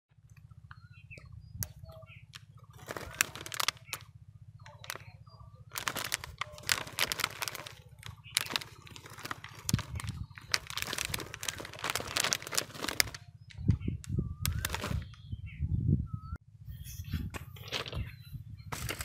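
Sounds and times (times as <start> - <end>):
low rumbles: 0.2 - 16.6
plastic snack packet crinkling: 2.7 - 4.1, 4.7 - 5.1, 5.7 - 13.2, 14.4 - 15.0.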